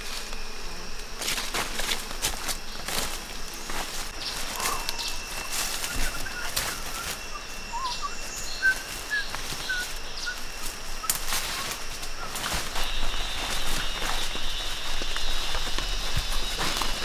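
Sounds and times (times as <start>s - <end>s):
footsteps through undergrowth: 0.0s - 17.0s
bird chirping: 4.1s - 17.0s.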